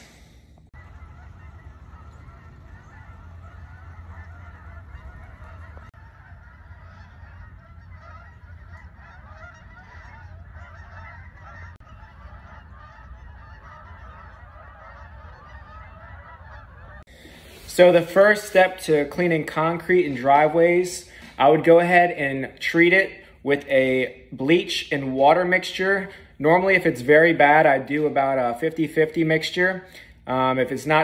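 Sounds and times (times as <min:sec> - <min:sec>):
low hum: 0:00.0 - 0:20.3
flock of birds honking: 0:00.0 - 0:22.0.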